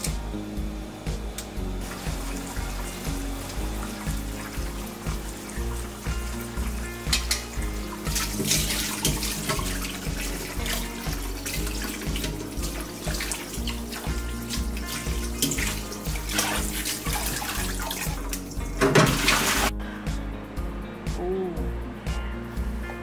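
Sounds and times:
background music with beat: 0.0 - 23.0
tap water running into bowl: 1.8 - 19.7.

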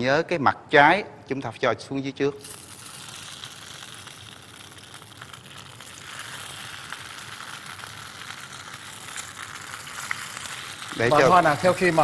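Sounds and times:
rice rolls sizzling in oil: 2.4 - 12.0.

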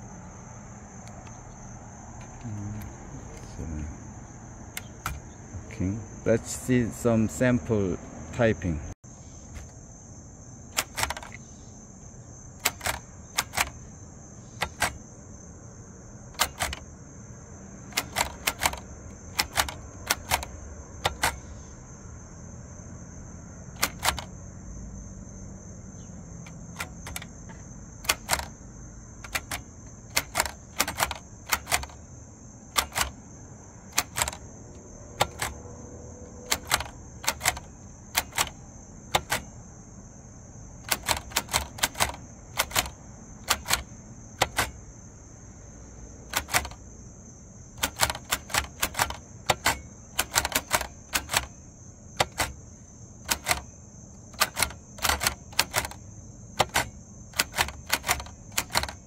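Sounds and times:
typewriter keys striking: 10.7 - 11.4, 12.6 - 13.8, 14.6 - 15.0, 16.4 - 16.8, 17.8 - 21.5, 23.8 - 24.3, 26.7 - 28.6, 29.2 - 32.0, 32.8 - 33.2, 33.9 - 34.4, 35.2 - 35.6, 36.4 - 39.5, 40.8 - 44.8, 46.3 - 46.8, 47.8 - 51.6, 52.2 - 52.6, 53.2 - 53.7, 54.3 - 56.0, 56.6 - 59.0.

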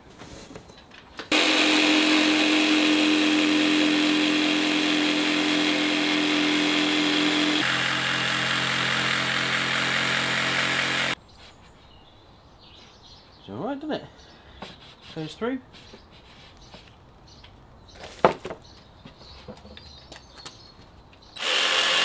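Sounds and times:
jigsaw cutting board: 1.3 - 11.2, 21.4 - 22.0.

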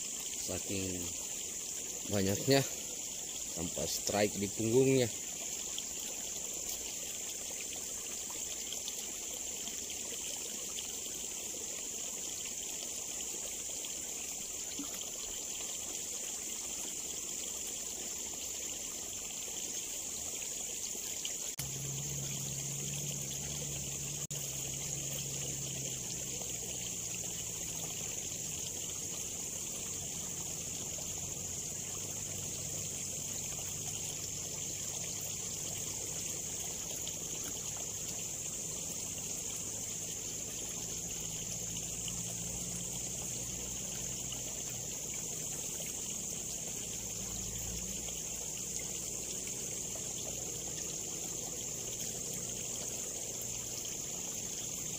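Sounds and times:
high-pitched insect buzz: 0.0 - 54.9
water trickling in a ditch: 0.0 - 54.9
low steady hum: 21.6 - 53.8.

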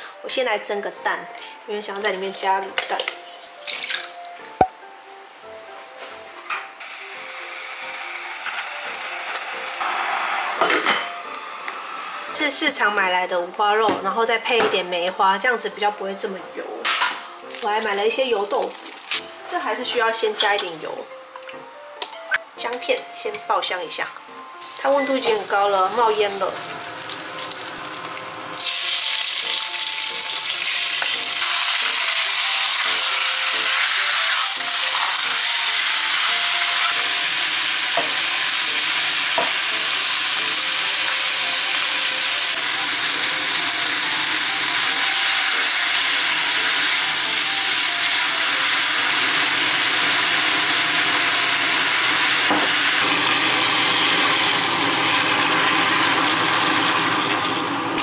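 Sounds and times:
food frying in hot oil: 24.6 - 57.9.

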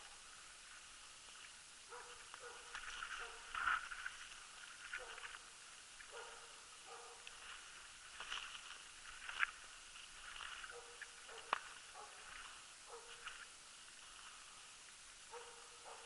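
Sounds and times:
dog barking: 1.9 - 3.5, 5.0 - 5.2, 6.1 - 7.2, 10.7 - 12.3, 12.9 - 13.2, 15.3 - 16.0.

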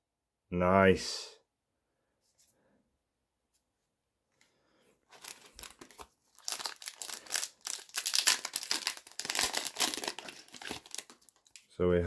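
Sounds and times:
foil pack crinkling: 5.1 - 11.7.

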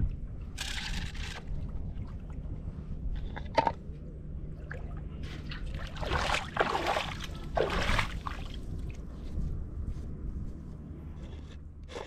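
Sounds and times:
feet splashing through water: 4.7 - 8.7.

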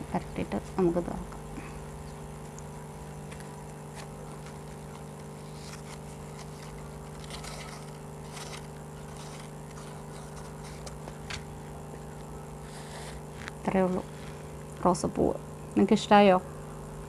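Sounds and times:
low mechanical hum: 0.0 - 17.0
paper and tape rustling: 3.2 - 14.4.

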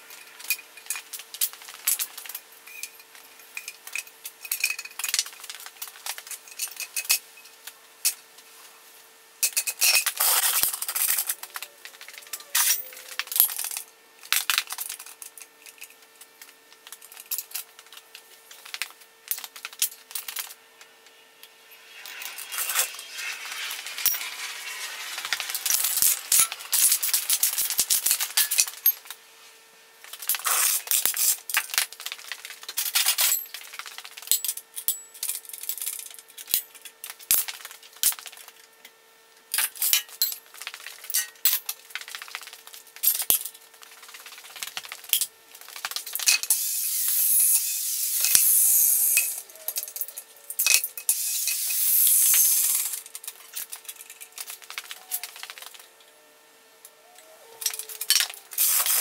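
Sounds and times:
faint steady hum: 0.0 - 59.0
rough scraping: 21.5 - 27.4.

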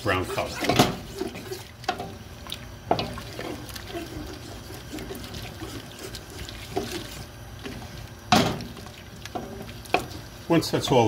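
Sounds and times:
wooden spoon scraping a pot: 0.0 - 2.1, 2.9 - 8.0
liquid sloshing: 0.0 - 11.0
loud clunk: 8.3 - 8.7.

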